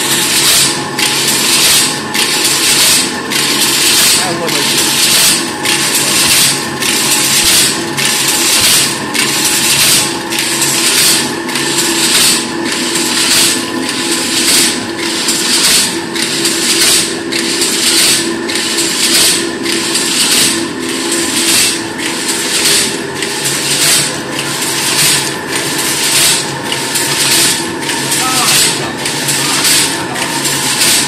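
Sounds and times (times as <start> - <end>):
steady mechanical hum: 0.0 - 31.0
loom clattering and hissing: 13.0 - 31.0.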